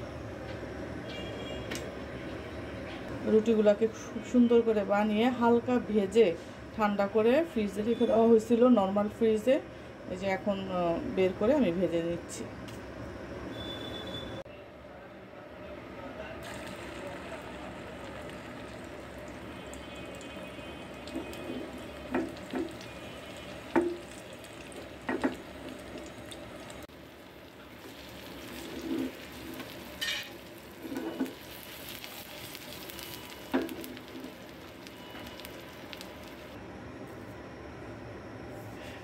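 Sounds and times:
egg sizzling in a frying pan: 16.4 - 36.6.

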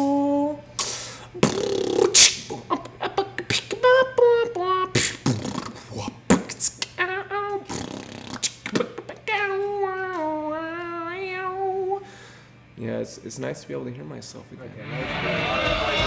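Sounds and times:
beatboxing: 0.8 - 9.2.

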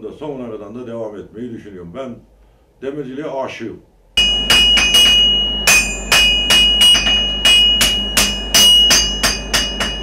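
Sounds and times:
anvil ringing: 4.2 - 10.0
hammer striking on anvil: 4.2 - 10.0.

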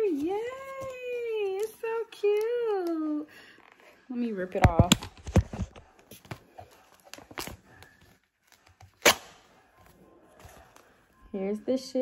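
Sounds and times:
paper label rustling: 0.0 - 3.2.

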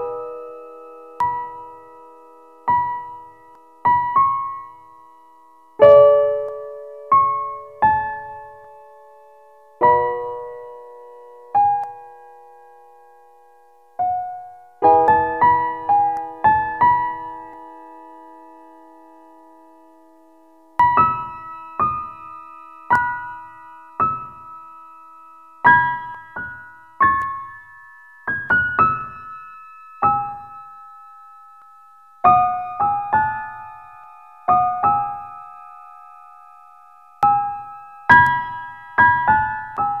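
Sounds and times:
slow piano melody: 0.0 - 40.0.

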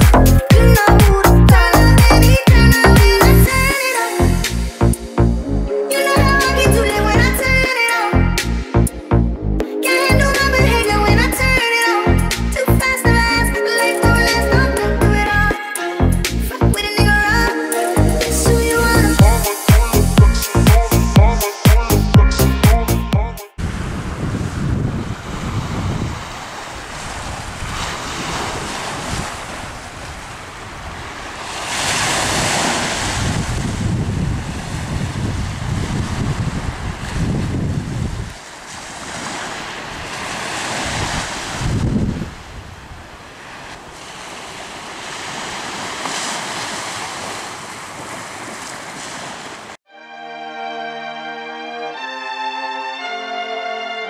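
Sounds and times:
small waves washing onto shore: 3.0 - 4.2, 23.6 - 49.8
wind gusting on microphone: 23.6 - 44.6.

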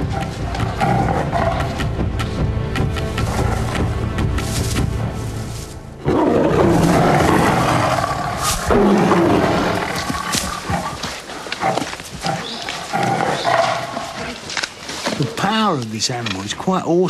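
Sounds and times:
tigers roaring and snarling: 0.0 - 1.9, 6.0 - 15.5.

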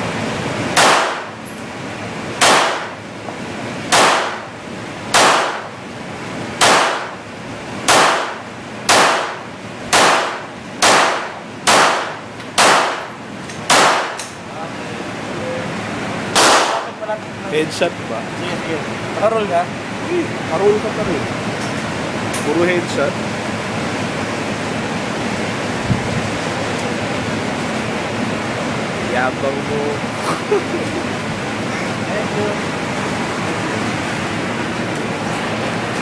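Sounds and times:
pistol shots echoing: 0.8 - 1.4, 2.4 - 3.0, 3.9 - 4.5, 5.1 - 5.7, 6.6 - 7.2, 7.9 - 13.1, 13.7 - 14.2, 16.3 - 16.9.

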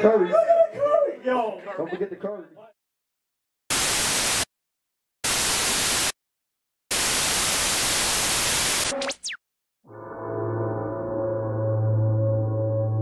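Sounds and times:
static hiss bursts: 3.7 - 4.5, 5.2 - 6.2, 6.9 - 9.3.

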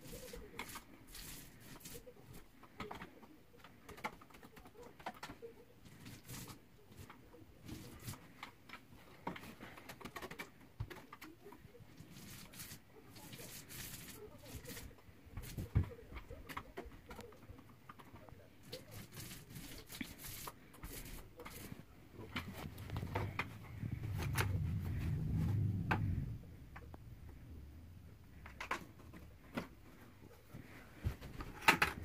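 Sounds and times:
paint roller sticky crackling: 0.0 - 3.2, 3.8 - 27.0.

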